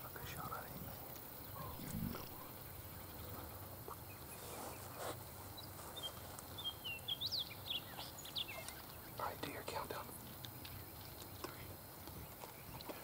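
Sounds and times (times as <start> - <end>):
bird chirping: 0.4 - 3.5.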